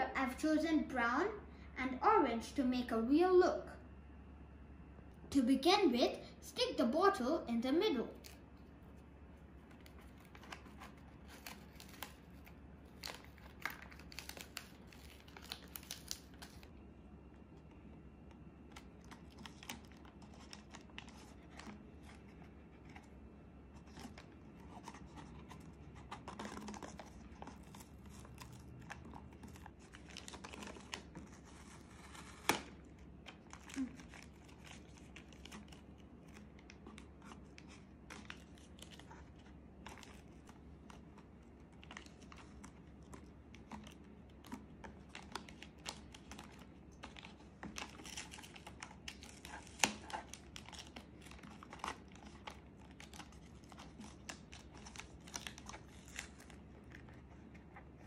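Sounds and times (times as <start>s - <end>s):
tape crinkling and rustling: 8.1s - 58.0s.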